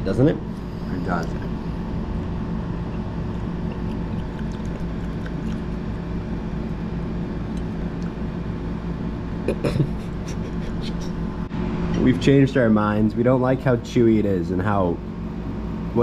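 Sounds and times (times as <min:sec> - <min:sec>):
steady low room hum: 0:00.0 - 0:16.0
person coughing: 0:09.4 - 0:11.2.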